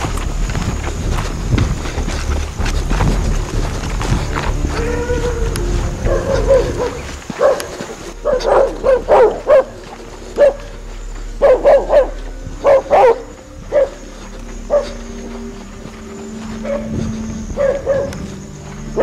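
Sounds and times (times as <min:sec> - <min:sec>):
dog barking: 0:06.0 - 0:10.7, 0:11.4 - 0:14.1, 0:14.7 - 0:15.0, 0:16.6 - 0:16.9, 0:17.6 - 0:18.2.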